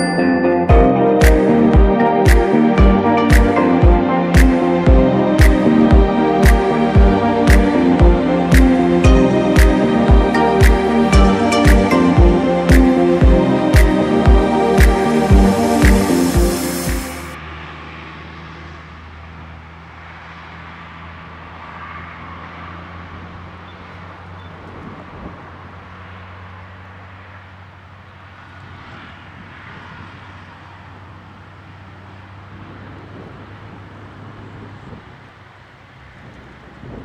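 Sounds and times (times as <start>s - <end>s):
low engine drone: 0.0s - 17.7s
faint outdoor background noise: 15.0s - 37.0s.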